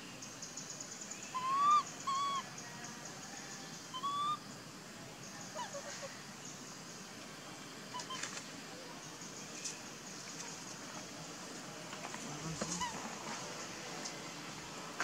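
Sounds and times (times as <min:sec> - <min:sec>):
steady high hiss: 0:00.0 - 0:15.0
monkey high coo call: 0:01.3 - 0:02.4, 0:03.9 - 0:04.4, 0:05.5 - 0:06.1, 0:07.9 - 0:08.4, 0:12.6 - 0:13.0.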